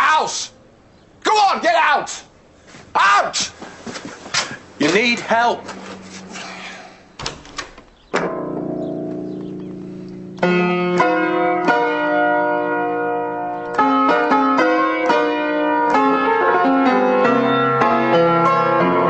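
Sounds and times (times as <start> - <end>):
upright piano playing blues: 8.0 - 19.0.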